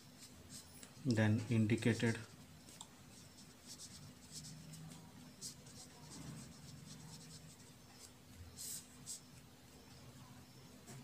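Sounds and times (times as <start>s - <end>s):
pen scratching on paper: 3.1s - 9.3s.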